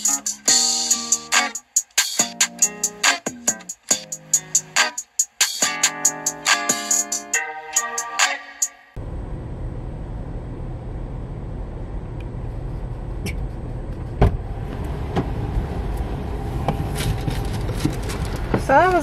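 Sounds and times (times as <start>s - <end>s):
car idling: 9.0s - 19.0s.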